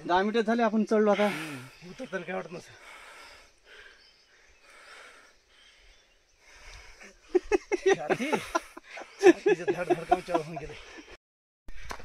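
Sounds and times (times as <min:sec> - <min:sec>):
men laughing: 0:07.0 - 0:11.2.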